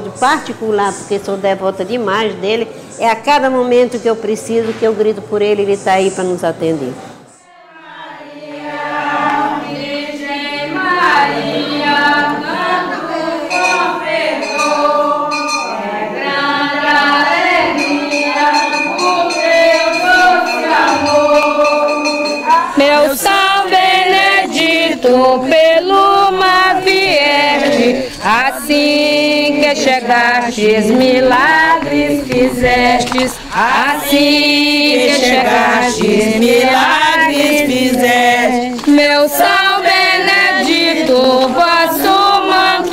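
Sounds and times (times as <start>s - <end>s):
women singing a hymn: 7.4s - 42.9s.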